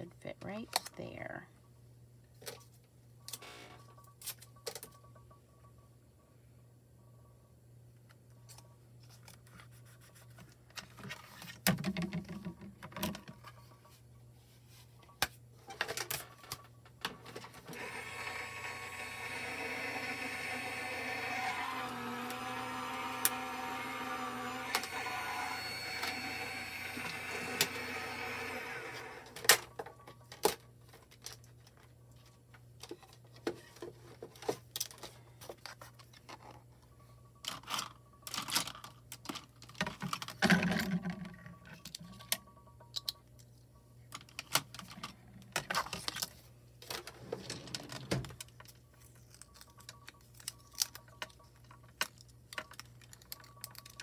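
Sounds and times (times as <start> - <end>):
craft machine whining: 17.6 - 29.7.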